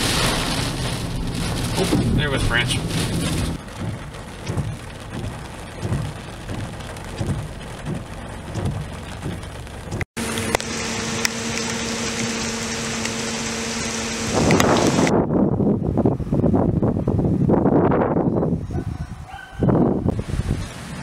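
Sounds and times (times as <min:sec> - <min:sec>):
steady rain: 0:00.0 - 0:15.1, 0:20.1 - 0:21.0.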